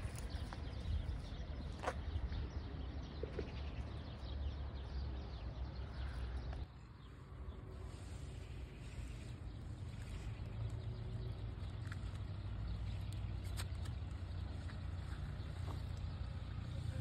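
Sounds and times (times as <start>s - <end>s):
wind rumbling on microphone: 0.0s - 3.8s.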